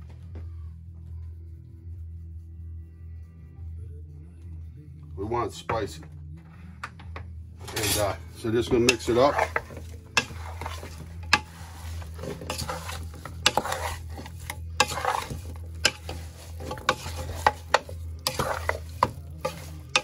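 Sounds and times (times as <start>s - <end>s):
spatula knocking metal pot: 8.7s - 20.0s.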